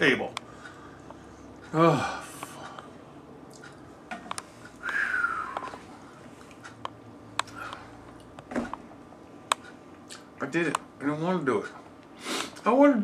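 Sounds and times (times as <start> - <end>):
man moaning: 1.7 - 2.6
mouth clicks: 4.8 - 5.8.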